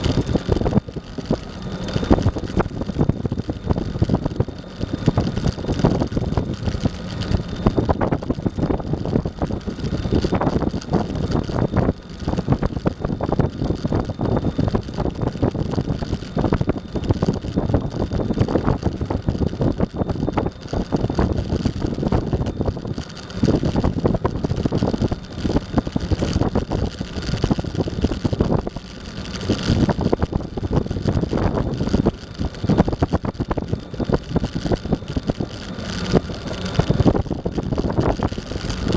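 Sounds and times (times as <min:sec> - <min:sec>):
skateboard rolling over asphalt: 0:00.0 - 0:38.9.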